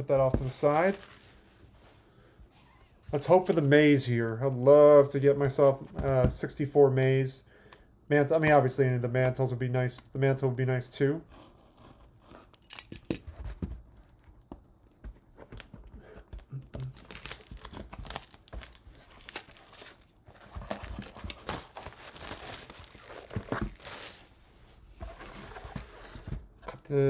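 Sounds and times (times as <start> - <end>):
plastic wrapping crinkling: 0.4 - 1.8, 16.4 - 24.4.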